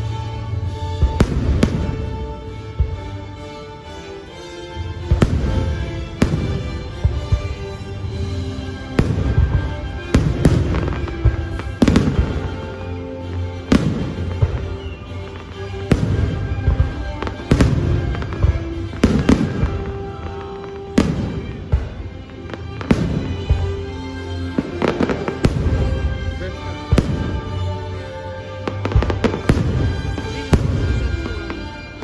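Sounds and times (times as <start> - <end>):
music: 0.0 - 32.0
firework crackle: 5.2 - 32.0.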